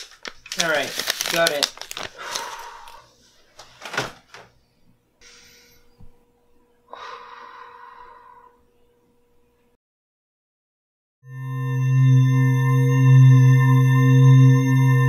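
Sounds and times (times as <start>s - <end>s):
faint electronic tone: 11.2s - 15.0s.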